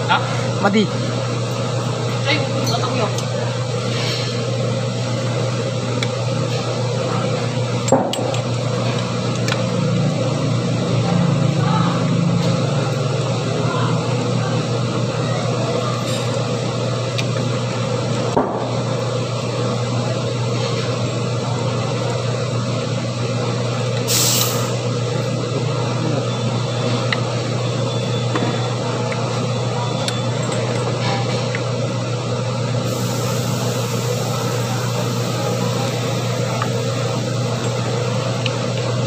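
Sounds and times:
low mechanical hum: 0:00.0 - 0:39.0
burst of hiss: 0:24.1 - 0:24.7.

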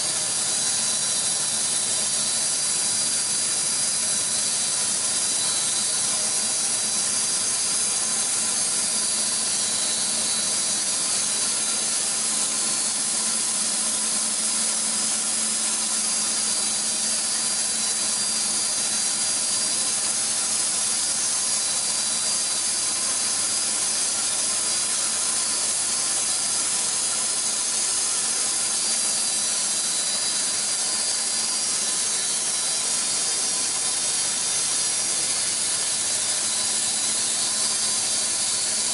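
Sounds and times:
band sawmill running: 0:00.0 - 0:38.9
high hiss of saw blade: 0:16.1 - 0:38.9.

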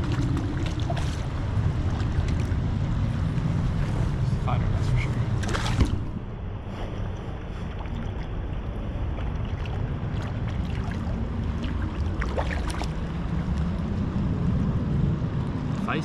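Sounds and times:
small water splashes: 0:00.0 - 0:03.2, 0:05.4 - 0:06.2, 0:06.9 - 0:13.5
river water over stones: 0:00.0 - 0:03.8, 0:06.8 - 0:13.6
wind buffeting microphone: 0:00.0 - 0:16.0.

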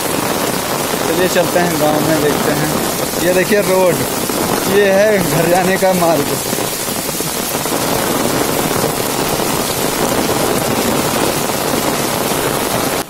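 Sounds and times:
heavy rain on an umbrella: 0:00.0 - 0:13.0
rain on wet pavement: 0:00.0 - 0:13.0.

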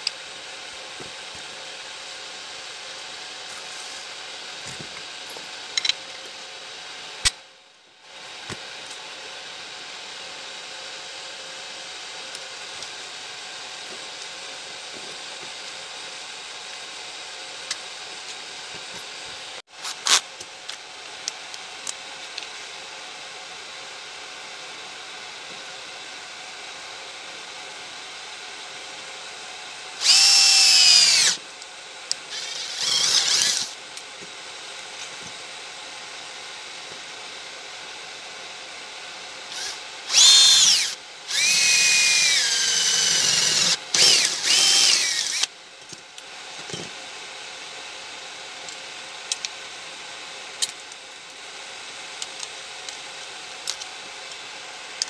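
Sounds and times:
cordless drill boring into metal: 0:30.0 - 0:31.4, 0:32.3 - 0:33.8, 0:39.5 - 0:45.5.

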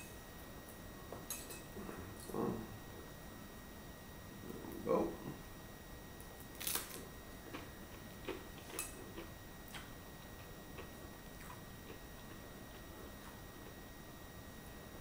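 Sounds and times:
chewing crunches: 0:06.4 - 0:13.8
cracker crunch bite: 0:06.5 - 0:09.9.

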